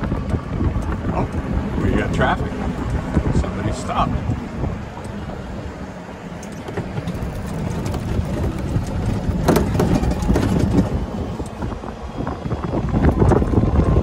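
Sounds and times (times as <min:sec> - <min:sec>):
golf cart rumbling: 0:00.0 - 0:14.0
small rattles: 0:06.4 - 0:11.6.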